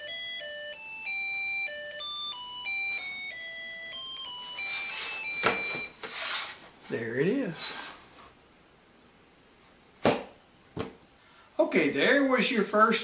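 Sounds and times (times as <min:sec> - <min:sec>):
rustling: 0:04.2 - 0:08.4.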